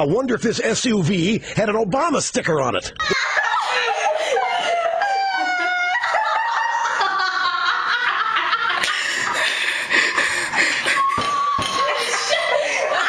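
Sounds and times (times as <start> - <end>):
girls laughing shrieking: 3.0 - 13.0.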